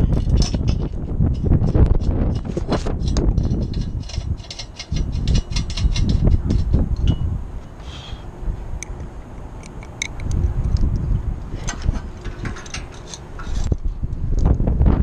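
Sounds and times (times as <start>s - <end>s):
wind buffeting microphone: 0.0s - 15.0s
metallic clicks and clinks: 2.3s - 7.2s.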